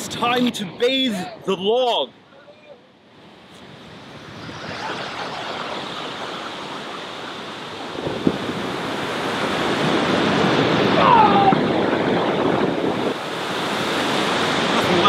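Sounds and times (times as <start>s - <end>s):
ocean surf breaking: 3.2s - 15.0s.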